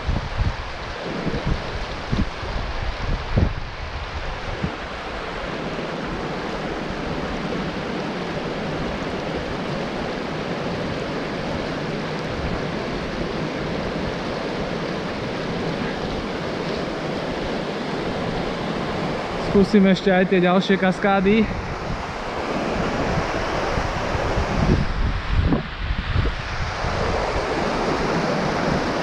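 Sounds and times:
stream rushing over cascade: 0:00.0 - 0:29.0.

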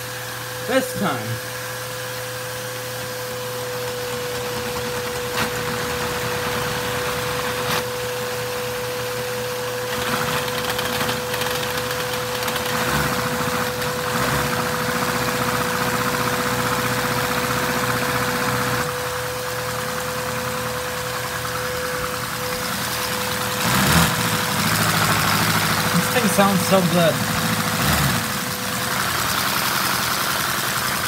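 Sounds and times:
vacuum cleaner whine: 0:00.0 - 0:28.8
toy engine clattering: 0:09.9 - 0:13.0.

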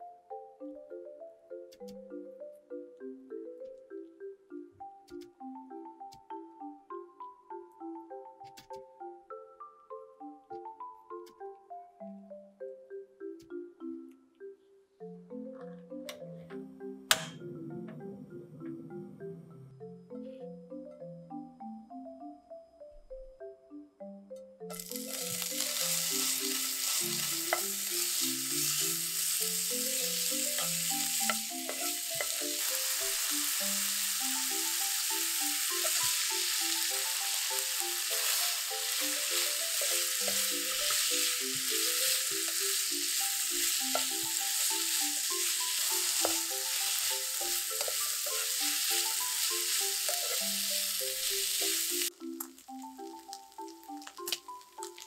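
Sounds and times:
bacon sizzling in frying pan: 0:24.7 - 0:55.0.

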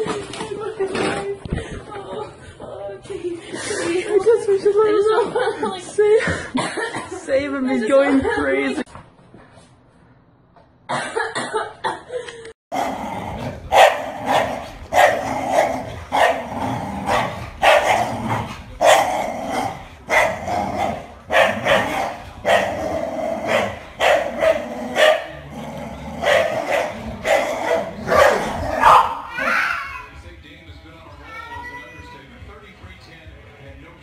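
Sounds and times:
dog barking: 0:13.7 - 0:25.5, 0:26.2 - 0:29.5.

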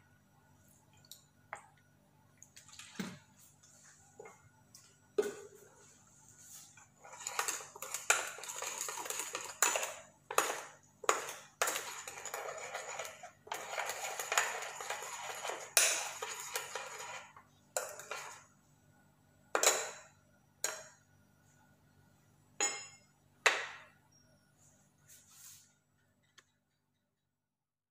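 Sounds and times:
spoon stirring in bowl: 0:02.6 - 0:18.6.

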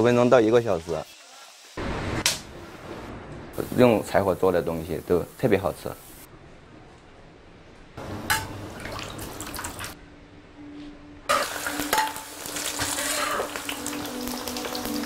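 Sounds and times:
garlic sizzling in hot oil: 0:00.0 - 0:01.8, 0:11.3 - 0:15.0.

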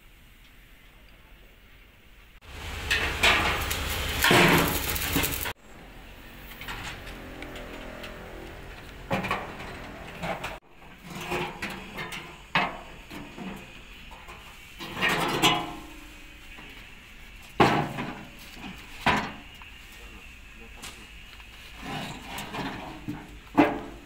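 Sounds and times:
metal panels clanking: 0:02.6 - 0:05.5, 0:09.0 - 0:16.3.

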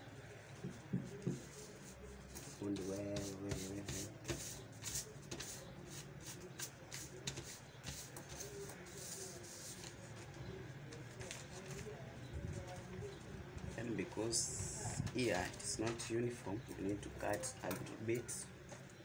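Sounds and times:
paper folding and rustling: 0:11.0 - 0:11.9.

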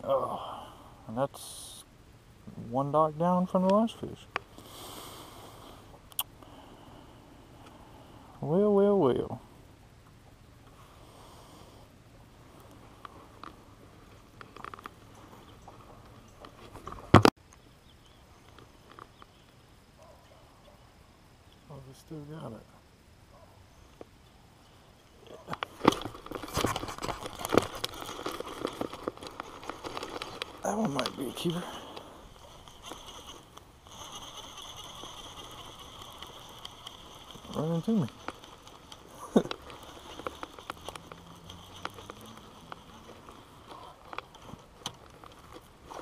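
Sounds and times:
faint low hum: 0:00.0 - 0:46.0
fishing reel clicking: 0:27.2 - 0:46.0.

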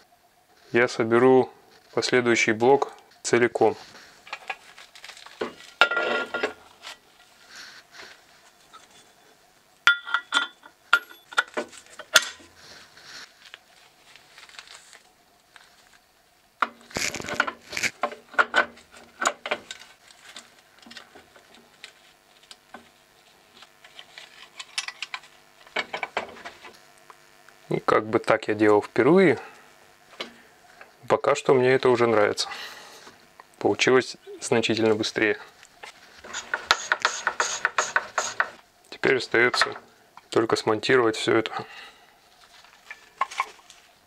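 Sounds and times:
steel parts clinking and knocking: 0:09.9 - 0:12.4
metal parts rubbing: 0:16.9 - 0:18.0, 0:36.2 - 0:38.6.

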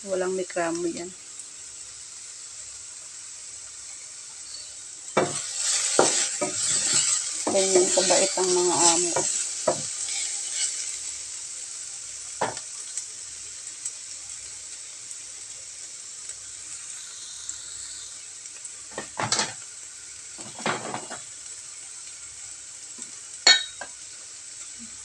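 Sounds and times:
mushrooms sizzling in a frying pan: 0:00.0 - 0:25.0
wooden spatula scraping a pan: 0:04.5 - 0:11.1, 0:20.4 - 0:21.2.

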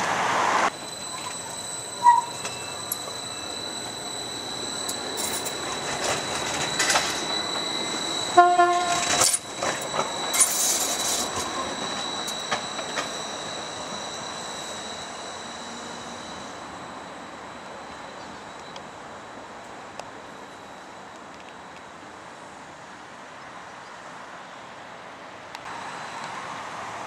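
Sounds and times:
tram rolling past: 0:00.0 - 0:23.6
high whine: 0:00.5 - 0:19.0
short signal tone: 0:00.7 - 0:17.2
rail clicks: 0:00.7 - 0:20.4.

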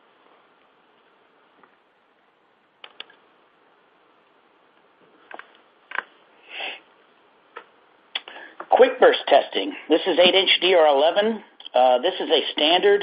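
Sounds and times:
small clicks: 0:02.8 - 0:03.2
faint hiss: 0:05.6 - 0:10.9
short breath: 0:06.4 - 0:06.9, 0:08.2 - 0:08.7.

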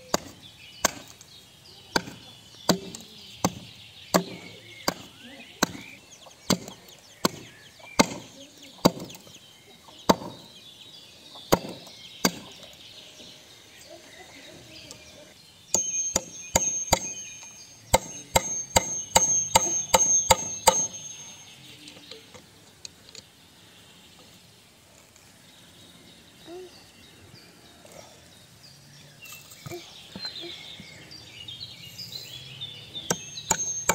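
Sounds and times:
hatchet chopping wood: 0:00.0 - 0:01.2, 0:01.9 - 0:09.3, 0:10.1 - 0:10.5, 0:11.5 - 0:12.6, 0:15.7 - 0:21.2, 0:33.0 - 0:33.9
hammer striking nail: 0:15.8 - 0:21.0, 0:33.1 - 0:33.9.

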